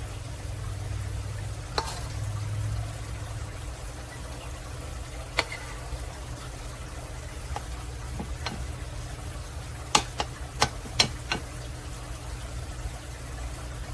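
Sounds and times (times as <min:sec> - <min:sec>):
low steady hum: 0:00.0 - 0:13.9
spoon scraping batter in bowl: 0:01.7 - 0:02.2, 0:05.3 - 0:06.0, 0:07.5 - 0:08.8.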